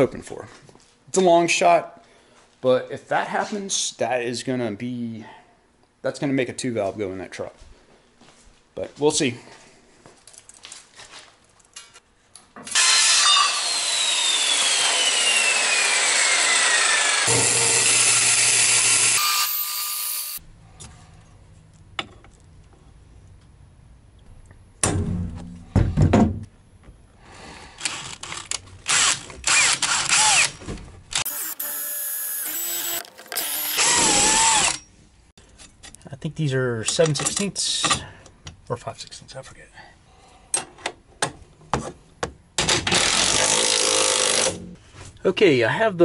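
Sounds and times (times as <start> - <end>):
power tool whine: 12.7 - 20.4, 28.9 - 34.8
cordless drill squealing on metal: 19.0 - 20.4, 31.2 - 34.9.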